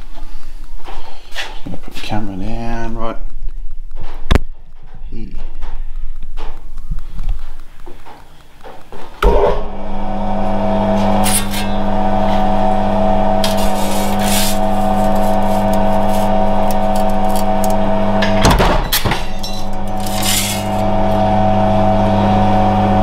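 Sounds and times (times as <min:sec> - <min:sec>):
electric motor humming: 0:09.2 - 0:23.0
shear blade crashing stroke: 0:11.2 - 0:11.8, 0:13.4 - 0:17.6, 0:18.4 - 0:20.9.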